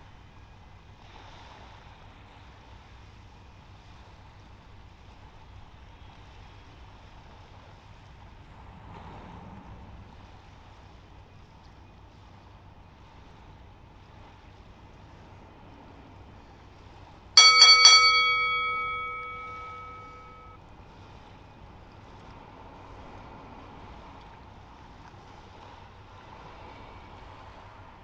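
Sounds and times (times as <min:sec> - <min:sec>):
faint wind: 0:00.0 - 0:28.0
water noise: 0:03.6 - 0:28.0
bell-like chime: 0:17.4 - 0:20.6.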